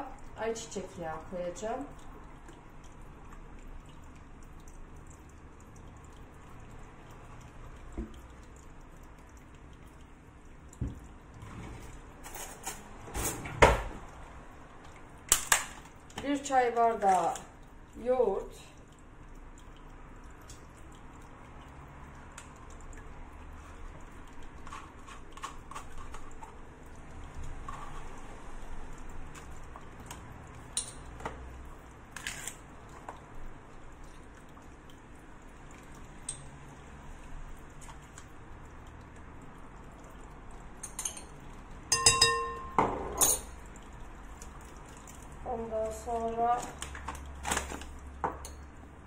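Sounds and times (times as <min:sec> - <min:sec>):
ringing spoon clinks on glass: 0:41.9 - 0:43.5.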